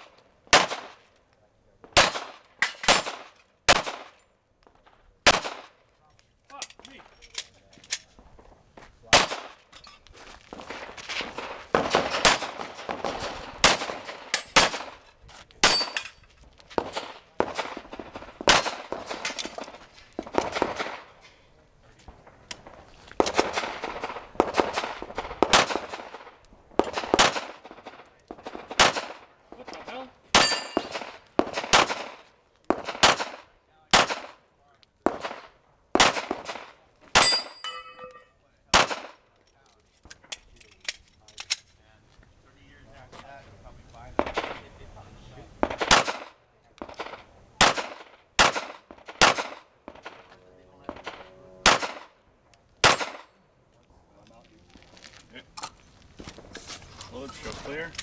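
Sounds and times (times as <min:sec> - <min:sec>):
pistol shots with echo: 0:00.5 - 0:01.0, 0:01.8 - 0:04.2, 0:05.2 - 0:05.8, 0:09.1 - 0:09.6, 0:11.7 - 0:15.0, 0:16.8 - 0:21.2, 0:22.1 - 0:34.4, 0:35.0 - 0:39.2, 0:44.2 - 0:44.7, 0:45.6 - 0:52.2, 0:52.8 - 0:53.3
steel plate ringing: 0:37.2 - 0:38.4
handgun shots with echo: 0:45.6 - 0:50.2, 0:50.9 - 0:52.1, 0:52.8 - 0:53.3.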